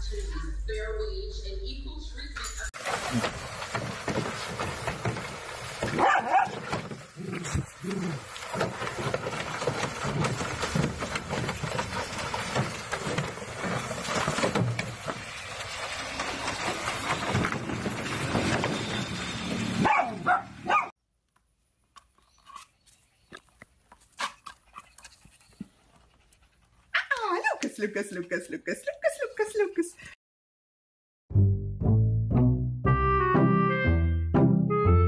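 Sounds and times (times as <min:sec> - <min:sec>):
puppies splashing in water: 0:02.8 - 0:20.9
puppies yipping: 0:19.8 - 0:20.9.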